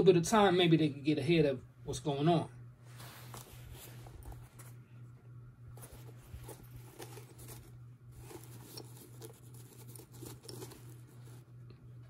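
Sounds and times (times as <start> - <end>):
low steady hum: 0.0 - 12.0
hands rustling with sneaker: 2.9 - 4.8, 5.7 - 11.6.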